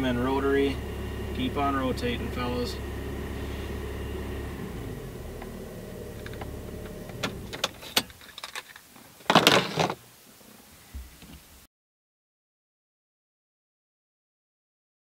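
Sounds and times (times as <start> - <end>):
rotary engine running: 0.0 - 7.8.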